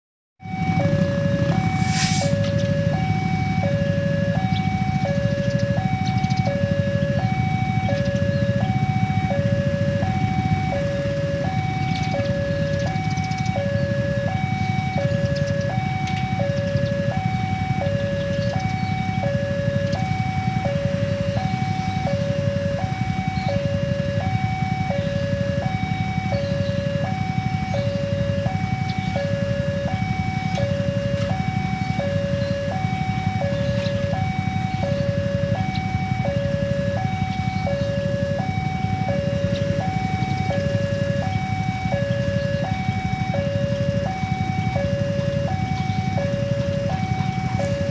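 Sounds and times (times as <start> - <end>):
two-tone level crossing alarm: 0.4 - 47.9.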